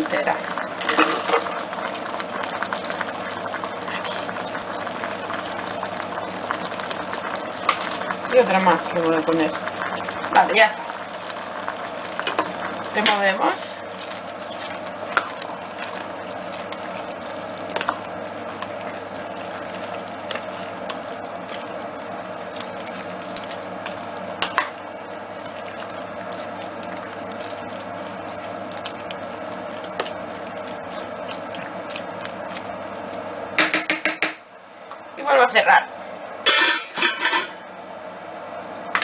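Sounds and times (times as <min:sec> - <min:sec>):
steady low hum: 0:00.0 - 0:39.0
spoon knocking against pot: 0:33.6 - 0:34.4.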